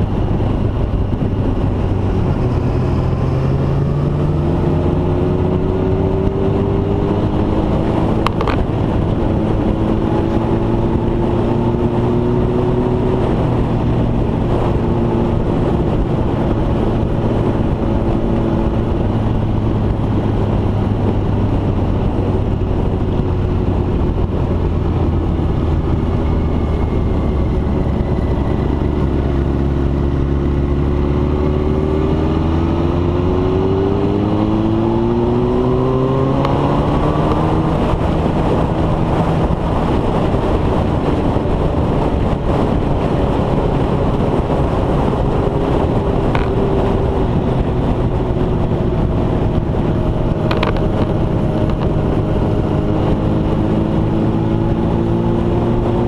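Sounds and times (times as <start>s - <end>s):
motorcycle engine accelerating: 0.0s - 56.0s
wind noise on microphone: 0.0s - 56.0s.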